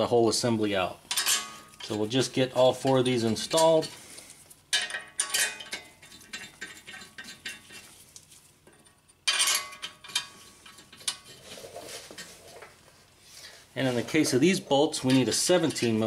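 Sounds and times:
steel bolts clinking: 0:01.1 - 0:02.1, 0:02.7 - 0:04.0, 0:04.7 - 0:07.8, 0:08.7 - 0:11.3, 0:14.8 - 0:16.0.

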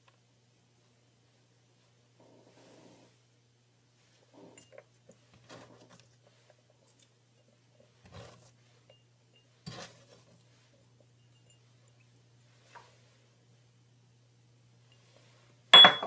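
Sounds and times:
glass bowl clinking: 0:11.1 - 0:12.1, 0:15.8 - 0:16.0.

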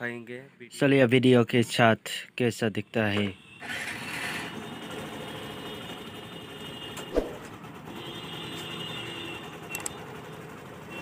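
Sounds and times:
small engine running: 0:03.6 - 0:11.0.

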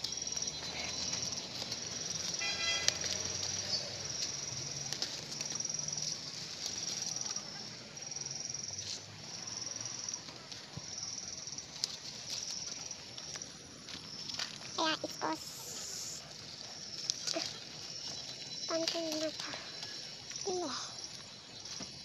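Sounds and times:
insects trilling: 0:00.0 - 0:22.0
leaves and vines rustling: 0:00.0 - 0:22.0.

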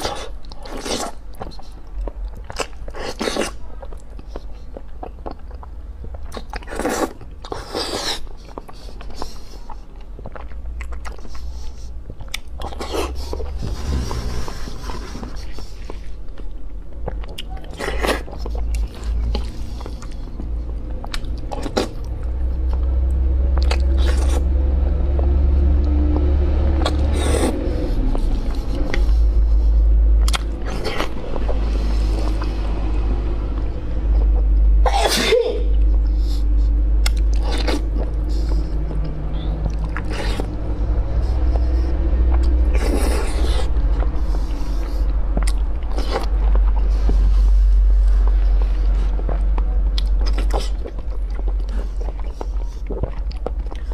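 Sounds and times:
mouth smacks and chewing: 0:00.0 - 0:34.8, 0:35.7 - 0:53.9
person slurping noodles: 0:12.8 - 0:15.6, 0:26.8 - 0:29.1.

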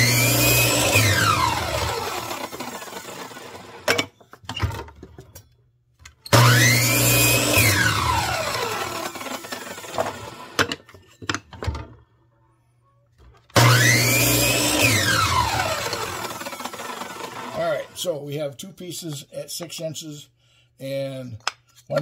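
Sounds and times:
chop saw motor whining: 0:00.0 - 0:04.0, 0:06.3 - 0:10.8, 0:13.6 - 0:18.0.

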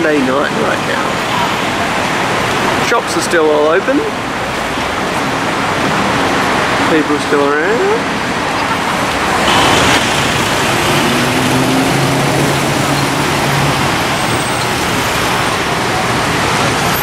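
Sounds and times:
cars driving past: 0:08.0 - 0:17.0.

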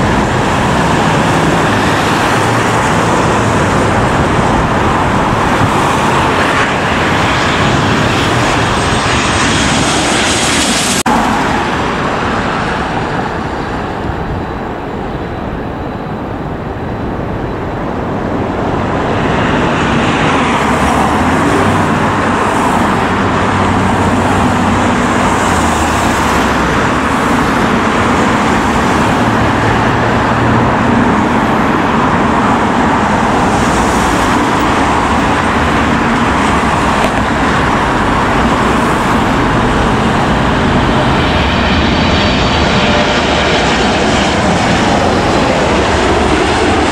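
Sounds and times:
jet airliner engines: 0:00.0 - 0:46.9.

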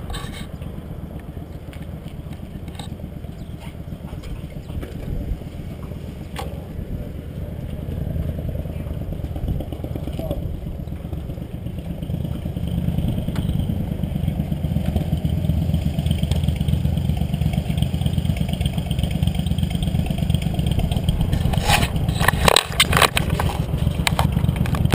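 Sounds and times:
motorcycle engine idling: 0:00.0 - 0:24.9.

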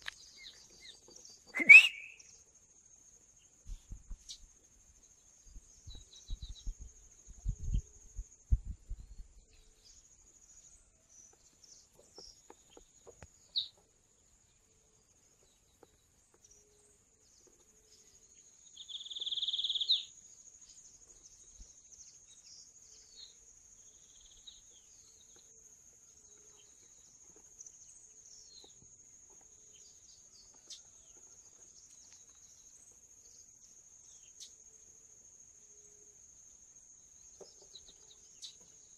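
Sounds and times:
bird chirps and calls: 0:00.0 - 0:02.4, 0:18.8 - 0:20.2.

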